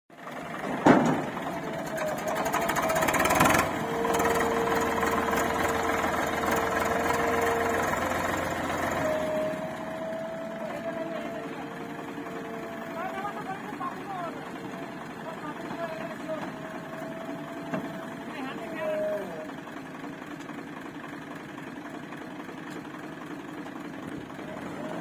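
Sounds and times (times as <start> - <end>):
diesel engines running under load: 0.1 - 25.0
loud rapid clatter: 2.2 - 4.4.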